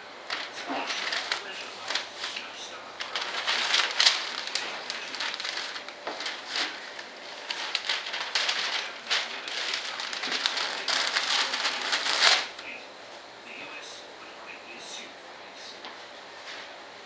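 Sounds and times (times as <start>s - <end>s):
paper rustling and crinkling: 0.2s - 12.8s.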